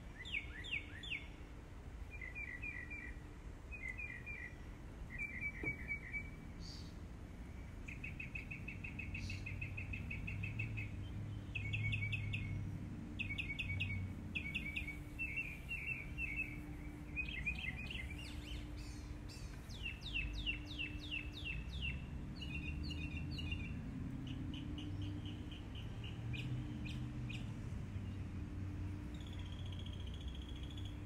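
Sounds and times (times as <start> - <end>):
low background hum: 0.0 - 31.0
songbirds chirping: 0.0 - 31.0.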